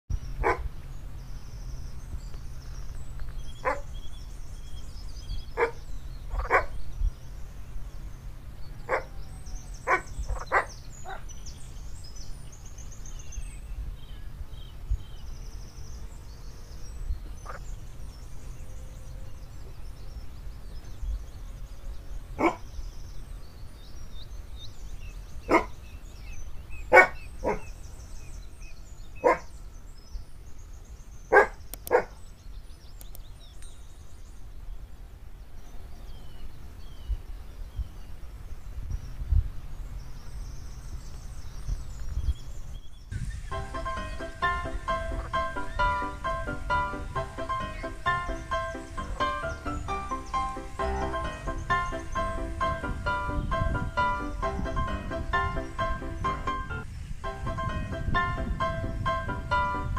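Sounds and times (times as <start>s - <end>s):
dog barking: 0.4s - 0.7s, 3.6s - 3.9s, 5.6s - 6.7s, 8.9s - 9.1s, 9.8s - 11.3s, 22.4s - 22.6s, 25.5s - 25.8s, 26.9s - 27.7s, 29.2s - 29.5s, 31.3s - 32.2s, 50.8s - 51.2s.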